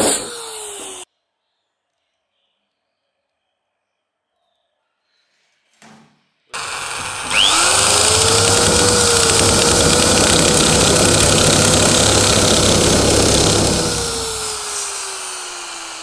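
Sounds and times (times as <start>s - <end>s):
blades cutting iron sheet: 6.6s - 16.0s
electric shear motor whining: 6.6s - 16.0s.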